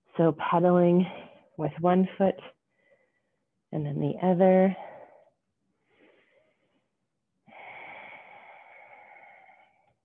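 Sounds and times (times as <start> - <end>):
woman breathing: 2.6 - 3.6, 4.6 - 10.0.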